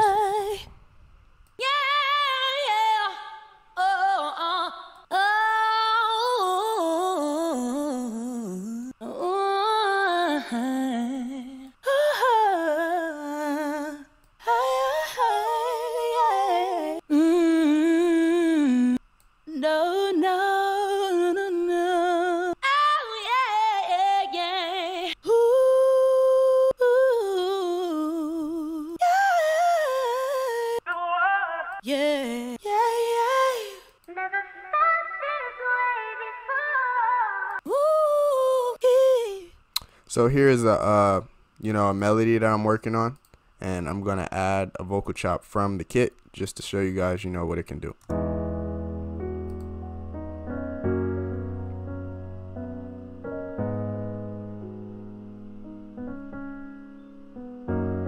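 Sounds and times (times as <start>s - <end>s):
woman singing short wordless phrases: 1.6s - 39.6s.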